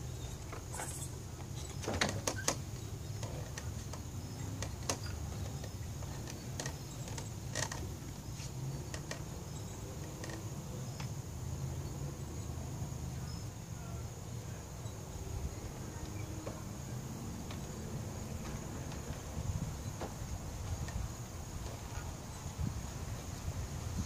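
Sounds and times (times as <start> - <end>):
crickets chirping: 0.0 - 24.0
wooden swing set knocks: 15.8 - 22.9.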